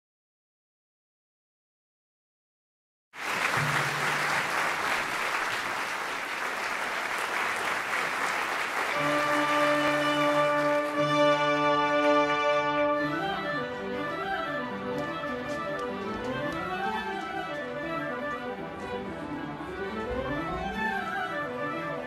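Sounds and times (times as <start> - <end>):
audience applause: 3.2 - 13.4
orchestra holding long notes: 3.3 - 5.6, 8.1 - 22.0.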